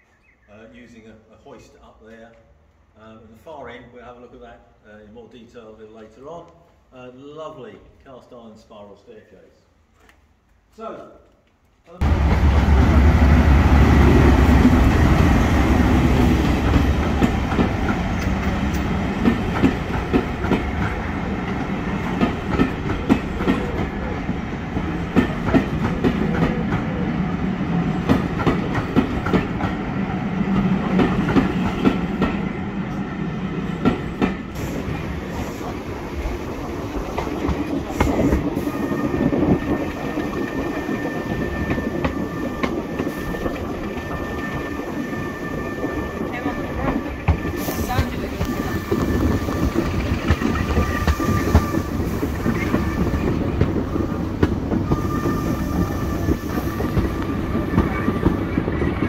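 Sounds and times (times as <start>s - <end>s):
diesel locomotive engine: 12.0s - 59.0s
wheel and rail noise: 12.0s - 59.0s
train wheels clickety-clack: 14.2s - 27.0s, 27.9s - 29.8s, 30.5s - 32.5s, 33.7s - 45.1s, 46.2s - 59.0s.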